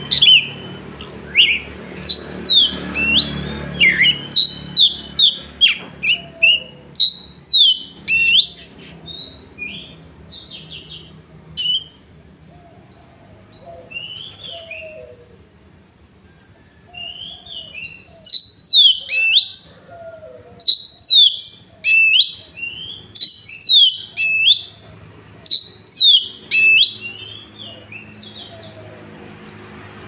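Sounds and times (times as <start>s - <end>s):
songbird whistling song: 0.0s - 15.2s, 16.7s - 28.9s.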